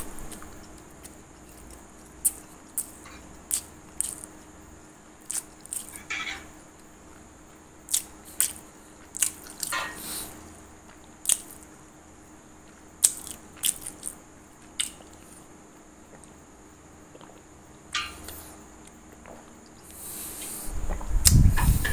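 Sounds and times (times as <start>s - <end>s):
person chewing food: 0.2s - 4.4s, 5.2s - 6.1s, 7.9s - 10.3s, 10.9s - 11.7s, 12.6s - 15.4s, 16.1s - 16.4s, 17.0s - 21.8s.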